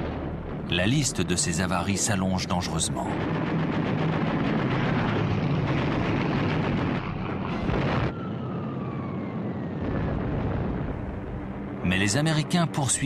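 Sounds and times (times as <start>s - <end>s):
dense rumbling din: 0.0s - 12.0s
falling bombs whistling: 3.1s - 11.6s.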